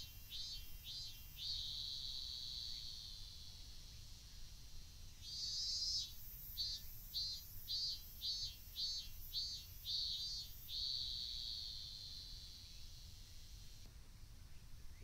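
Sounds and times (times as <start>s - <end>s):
cicada singing: 0.0s - 13.9s.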